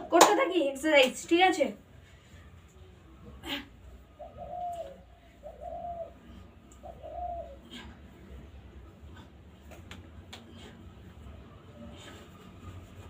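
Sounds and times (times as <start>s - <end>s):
dove cooing: 4.1s - 8.0s.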